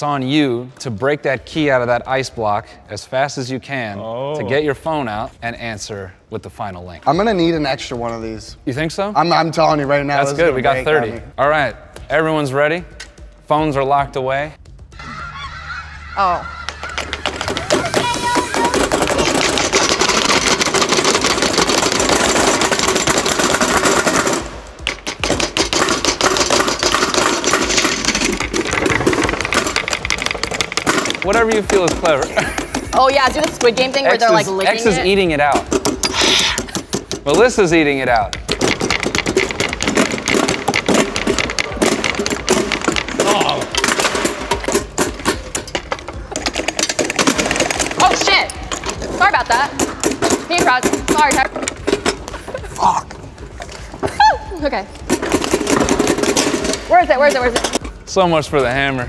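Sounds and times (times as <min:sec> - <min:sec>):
small hammers chipping ice: 0:17.2 - 0:34.2, 0:35.6 - 0:52.0.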